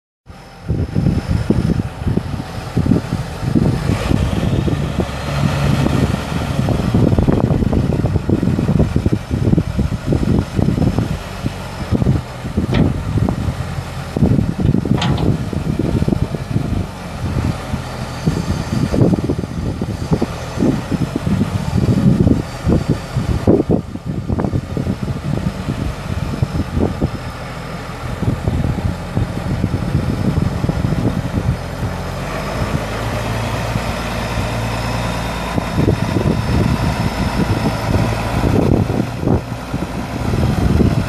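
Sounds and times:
tractor diesel engine running: 0:00.3 - 0:41.0
wind buffeting microphone: 0:00.3 - 0:41.0.

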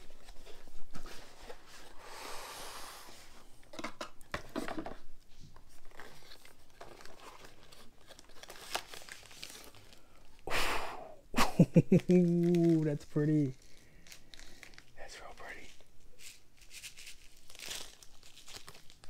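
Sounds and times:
packaging crinkling and rustling: 0:03.7 - 0:10.4, 0:12.0 - 0:19.0.

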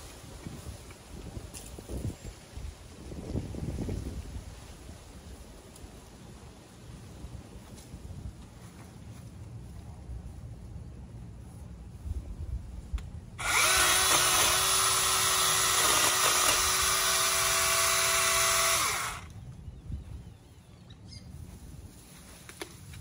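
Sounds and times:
mini chainsaw cutting branches: 0:13.4 - 0:19.4.

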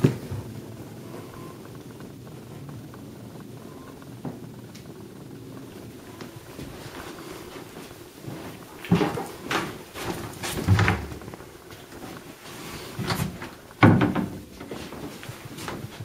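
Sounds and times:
wooden cupboard doors knocking: 0:13.8 - 0:14.4.

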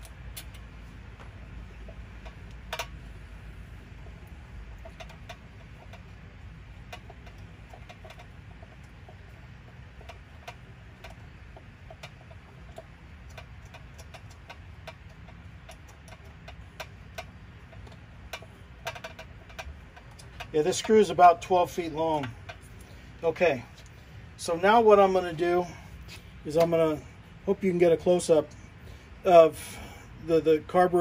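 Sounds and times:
small metallic clicks of tools: 0:00.0 - 0:03.0, 0:10.0 - 0:21.2
low steady hum: 0:00.0 - 0:31.0.

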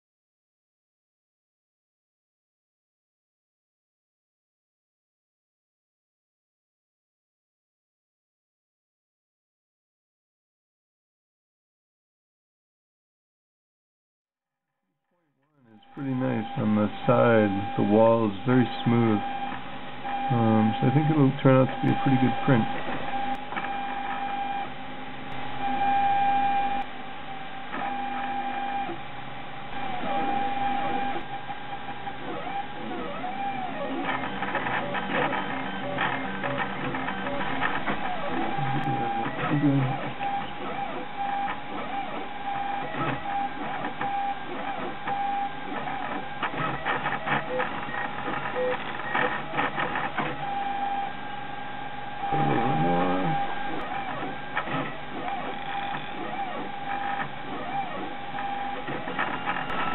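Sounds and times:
stepper motors whining: 0:15.8 - 0:24.7, 0:29.7 - 0:59.9.

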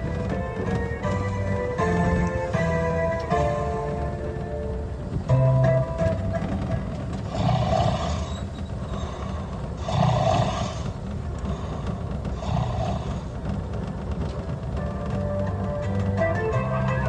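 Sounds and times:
steady low rumble: 0:00.0 - 0:17.0
rough animal-like calls: 0:07.3 - 0:11.0.

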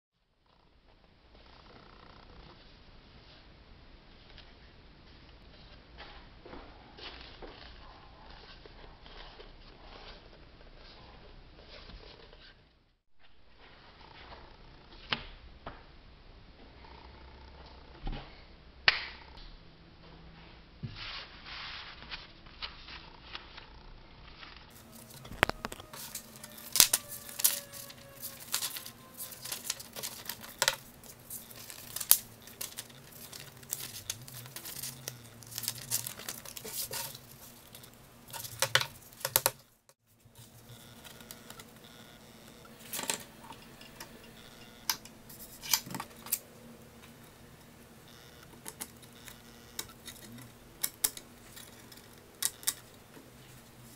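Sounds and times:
paper rustling and creasing: 0:05.5 - 0:15.0, 0:20.9 - 0:42.0.

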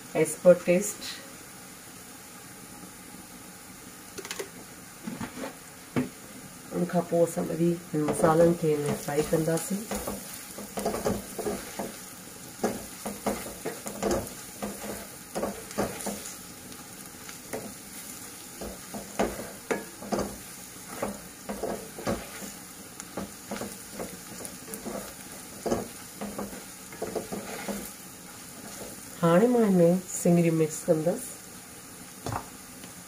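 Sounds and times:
onions sizzling in oil: 0:00.0 - 0:33.0.

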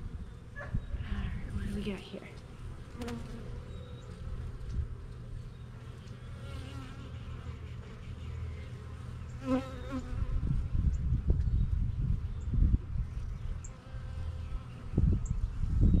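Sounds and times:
bees buzzing: 0:01.4 - 0:04.6
bee buzzing past: 0:01.5 - 0:04.3, 0:05.8 - 0:11.0.

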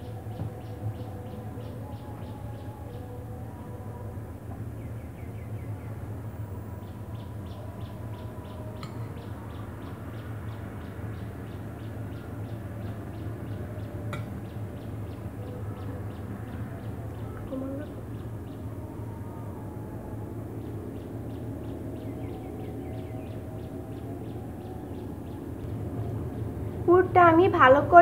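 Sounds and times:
steady low hum: 0:00.0 - 0:28.0
bird chirping: 0:06.7 - 0:26.9.

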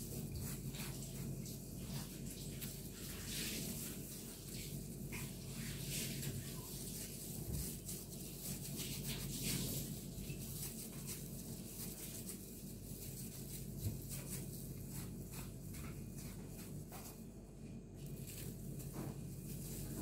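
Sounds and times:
plastic gloves crinkling: 0:00.0 - 0:20.0
mashed potato squishing: 0:06.5 - 0:17.2.

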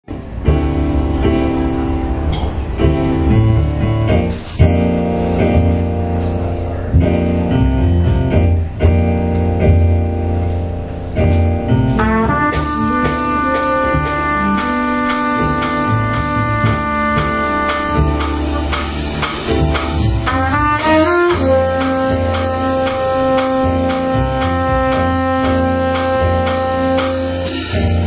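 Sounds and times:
bass: 0:00.0 - 0:28.0
drums: 0:00.0 - 0:28.0
saxophone: 0:12.0 - 0:28.0
trumpet held notes: 0:12.0 - 0:28.0.

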